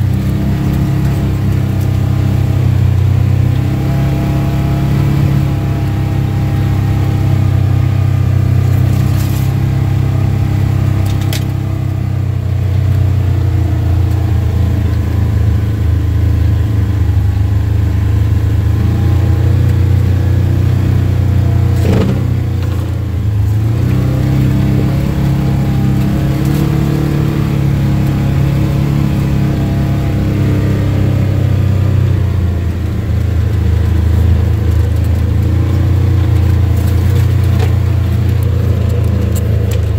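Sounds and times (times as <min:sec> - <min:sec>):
vehicle engine running: 0:00.0 - 0:39.9
knocks from rough ride: 0:21.5 - 0:24.1.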